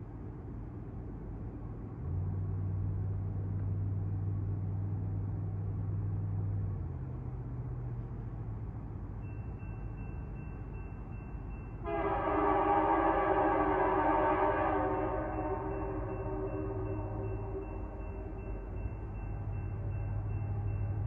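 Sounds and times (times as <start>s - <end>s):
crossing warning bell ringing: 9.0s - 21.0s
distant locomotive air horn: 11.8s - 18.6s.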